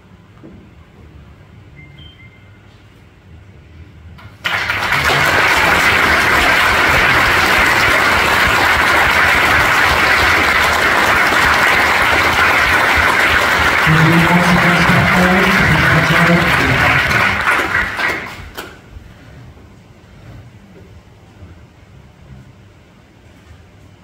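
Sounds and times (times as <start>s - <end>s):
crowd applauding: 4.4s - 18.8s.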